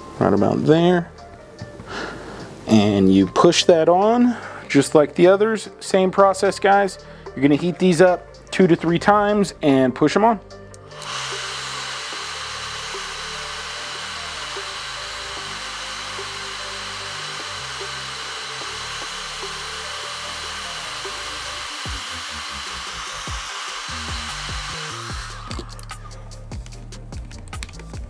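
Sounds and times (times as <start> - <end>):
hair dryer whining: 10.8 - 26.2.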